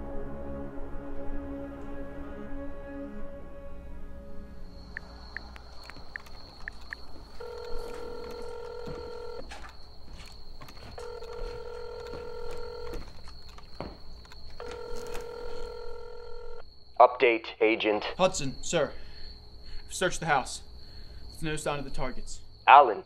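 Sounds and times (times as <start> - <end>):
faint high whine: 0.0 - 23.0
telephone ringback tone: 6.7 - 9.5, 11.0 - 13.1, 14.6 - 16.6.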